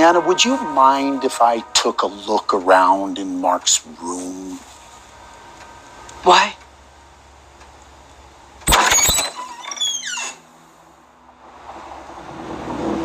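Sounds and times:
door hinges creaking: 8.6 - 10.5.

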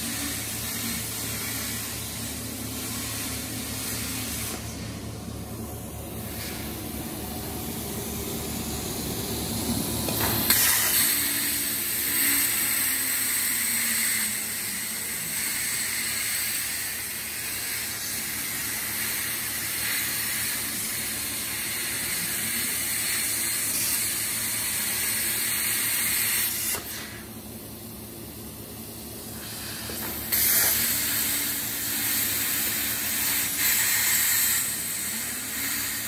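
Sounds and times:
machine hum: 0.0 - 15.8
plasma torch hissing: 0.0 - 27.7, 28.5 - 36.0.

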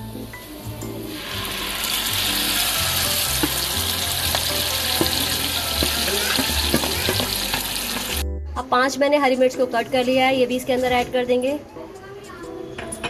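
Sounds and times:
food sizzling in hot oil: 0.0 - 8.2
wooden spatula scraping a pan: 3.4 - 7.6.

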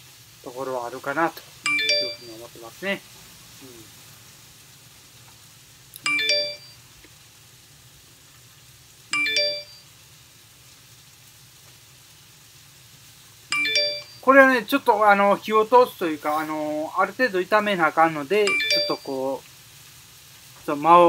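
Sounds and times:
faint steady hum: 0.0 - 21.0
electronic chime: 1.7 - 2.5, 6.0 - 6.8, 9.1 - 9.8, 13.5 - 14.3, 18.5 - 19.3.

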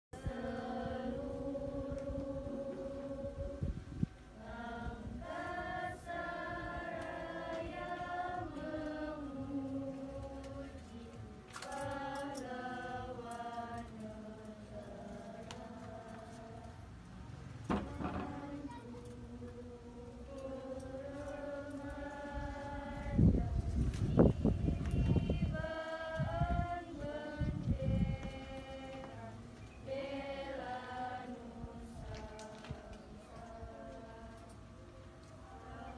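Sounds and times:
group singing long held notes: 0.2 - 35.9
short thump: 17.7 - 18.4.

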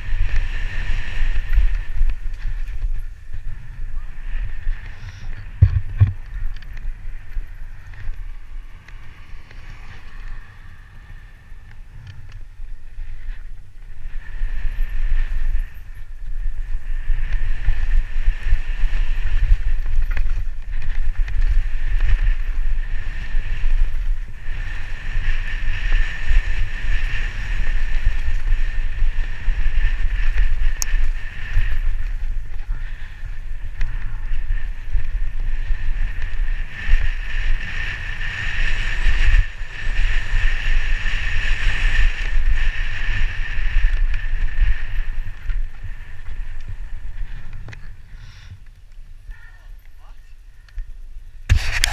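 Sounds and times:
tyres on dirt trail: 0.0 - 51.9
wind buffeting microphone: 0.0 - 51.9.

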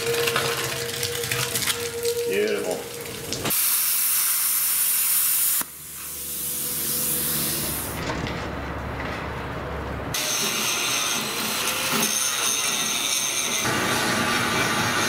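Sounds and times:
cutting torch hissing: 3.5 - 8.0.

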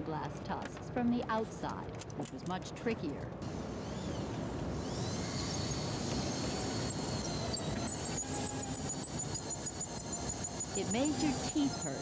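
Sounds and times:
power drill whining and grinding: 3.4 - 12.0.

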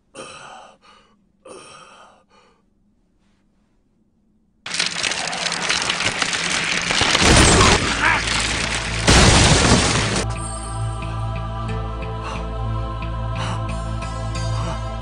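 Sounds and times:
wood cracking and crackling: 4.7 - 10.3.

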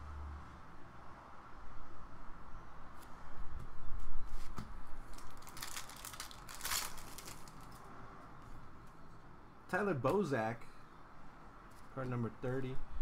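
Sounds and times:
trading cards being shuffled: 4.4 - 7.8.

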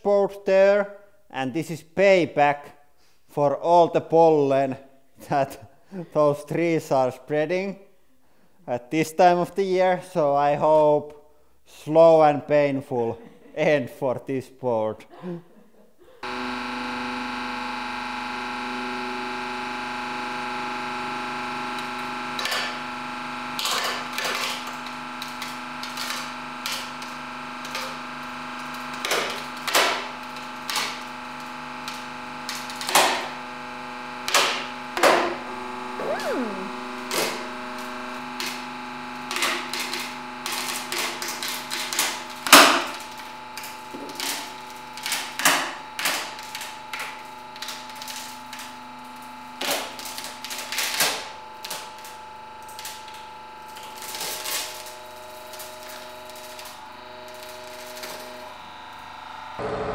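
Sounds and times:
machine hum: 16.2 - 45.2, 45.9 - 59.9.

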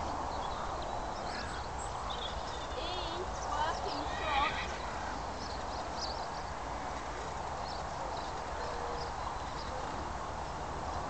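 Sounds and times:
wind rumble on microphone: 0.0 - 11.0.

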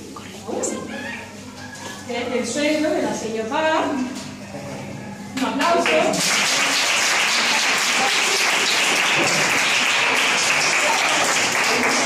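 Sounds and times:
children applauding: 5.8 - 12.0.

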